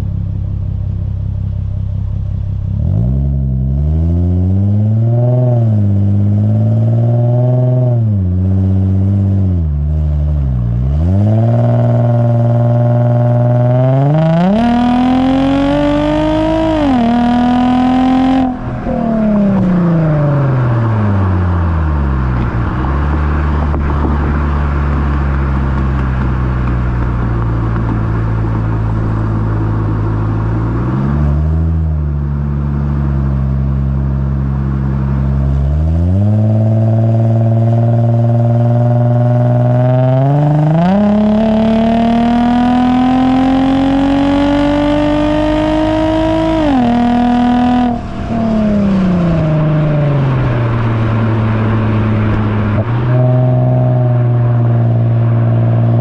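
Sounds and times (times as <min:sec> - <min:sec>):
car engine revving through exhaust: 0:00.0 - 0:56.0
tyre road noise: 0:00.0 - 0:56.0
wind noise: 0:14.1 - 0:30.8, 0:46.4 - 0:56.0.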